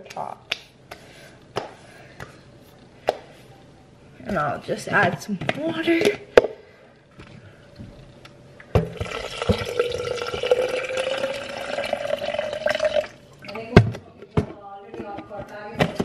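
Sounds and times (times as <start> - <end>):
water pouring into bottle: 8.9 - 13.2.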